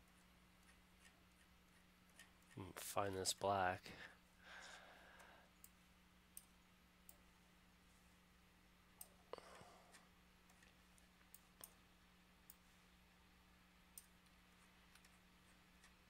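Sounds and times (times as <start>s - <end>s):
low steady hum: 0.0s - 16.0s
computer mouse clicks: 0.1s - 2.6s, 5.2s - 7.3s, 9.9s - 11.8s, 12.4s - 12.6s, 13.9s - 16.0s.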